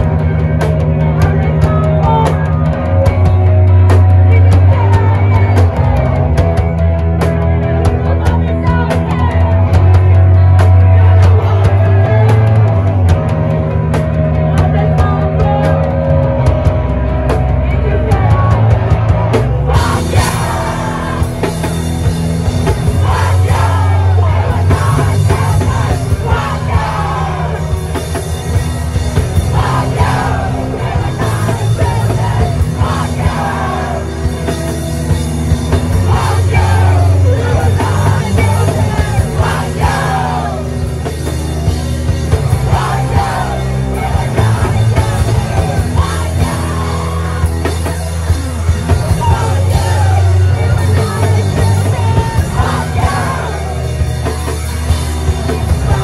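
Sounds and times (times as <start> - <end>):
bass guitar: 0.0 - 56.0
distorted electric guitars: 0.0 - 56.0
pounding drums: 18.9 - 56.0
shouted vocals: 19.6 - 34.5, 35.7 - 56.0.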